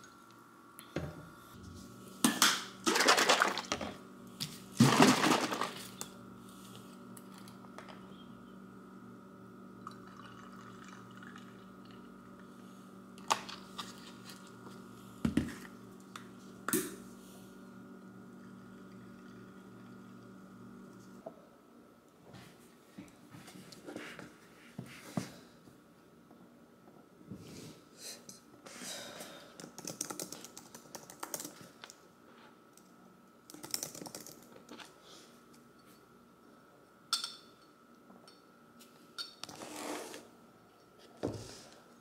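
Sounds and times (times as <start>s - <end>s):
faint hum: 0.0s - 42.0s
liquid pouring over ice: 9.8s - 12.0s.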